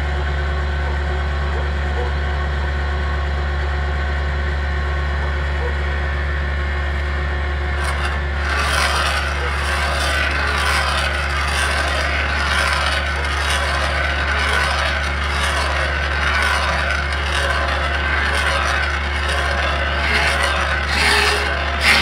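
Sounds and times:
excavator diesel engine running: 0.0 - 22.0
hydraulic stump drill: 7.7 - 22.0.

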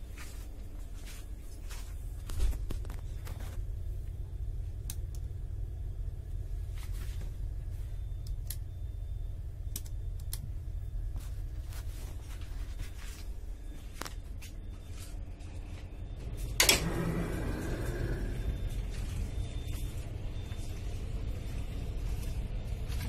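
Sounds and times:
train coach rumble: 14.8 - 23.0.

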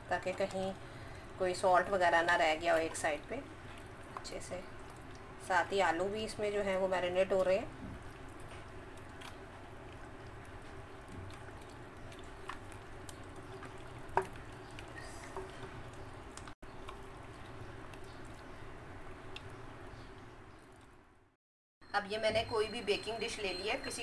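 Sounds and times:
hands squelching wet marinade: 0.0 - 20.9
soft wet clicks: 3.6 - 5.3, 7.4 - 21.0.

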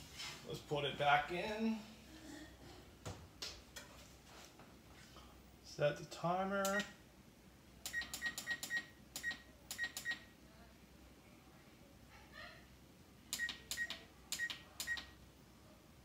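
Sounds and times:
oven control panel beeps: 7.9 - 10.3, 13.4 - 15.2.

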